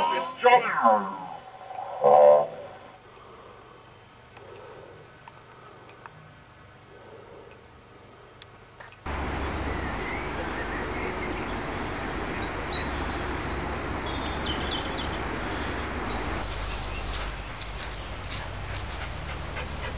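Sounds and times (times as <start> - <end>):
steady rush of noise: 0.0 - 19.9
birds chirping: 9.1 - 19.9.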